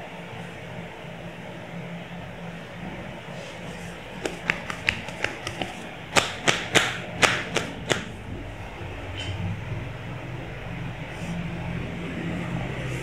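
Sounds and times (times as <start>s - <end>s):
hands slapping body: 4.2s - 8.1s.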